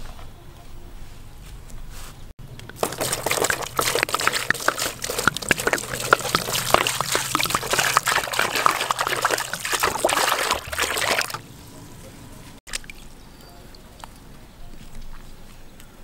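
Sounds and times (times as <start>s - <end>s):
water pouring into plastic basin: 2.7s - 11.4s.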